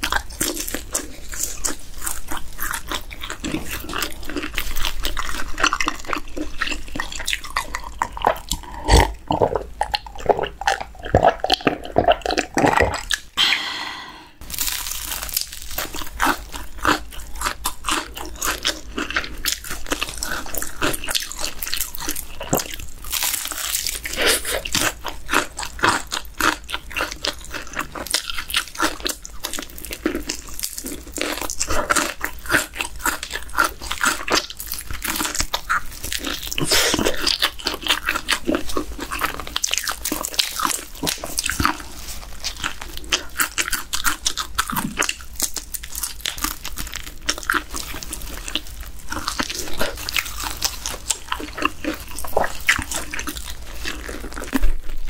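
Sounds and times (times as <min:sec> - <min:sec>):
crunching of fried chicken: 0:00.0 - 0:13.4, 0:14.4 - 0:55.0
person swallowing drink: 0:08.5 - 0:14.4.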